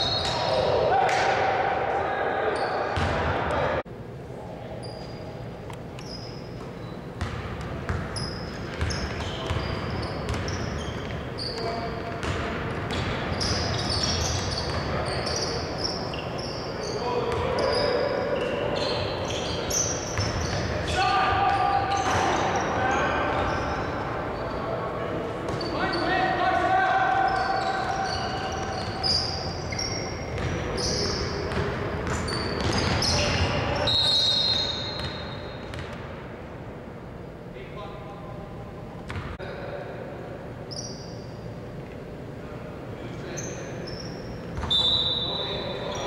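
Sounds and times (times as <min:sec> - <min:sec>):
sneakers squeaking on hardwood: 0:02.6 - 0:03.3, 0:06.0 - 0:24.6, 0:25.4 - 0:26.2, 0:27.2 - 0:36.0, 0:43.4 - 0:46.0
basketball bouncing: 0:03.0 - 0:03.3, 0:07.2 - 0:08.1, 0:08.7 - 0:10.6, 0:12.2 - 0:15.0, 0:30.3 - 0:30.6, 0:31.5 - 0:33.5
players' voices: 0:14.4 - 0:34.9.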